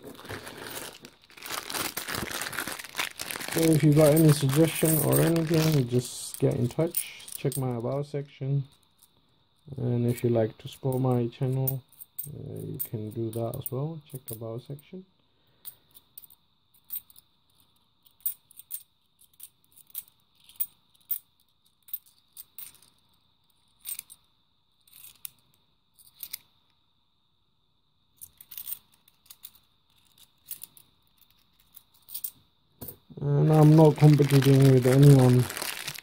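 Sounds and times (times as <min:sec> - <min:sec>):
coins clinking in hands: 0:02.6 - 0:08.0, 0:28.2 - 0:36.0.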